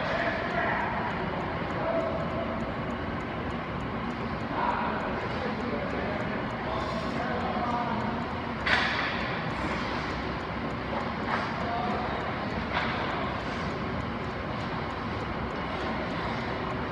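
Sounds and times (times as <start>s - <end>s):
ice rink background noise: 0.0s - 3.6s, 4.2s - 16.9s.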